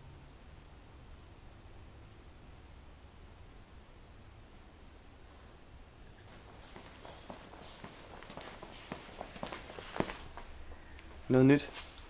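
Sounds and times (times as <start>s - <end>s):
footsteps on a hard floor: 6.2s - 12.0s.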